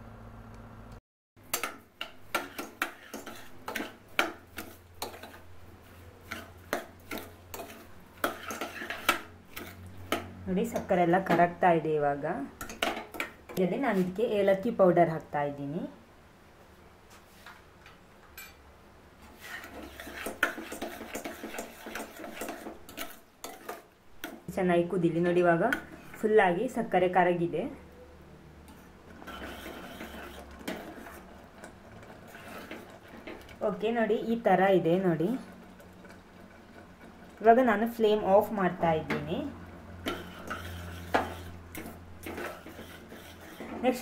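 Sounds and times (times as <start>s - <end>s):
metal ladle scraping a pot: 1.5s - 10.9s, 19.3s - 24.4s, 28.7s - 33.8s, 40.0s - 44.0s.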